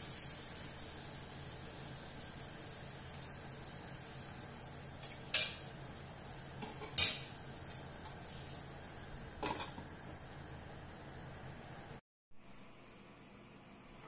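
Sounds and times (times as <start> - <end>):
faint steady hiss: 0.0 - 14.0
metal cookware clinking: 5.0 - 5.7, 6.6 - 7.4, 9.4 - 9.9.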